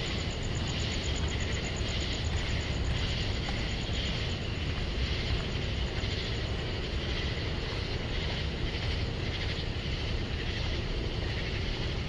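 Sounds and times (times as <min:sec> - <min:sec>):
cicadas buzzing: 0:00.0 - 0:12.0.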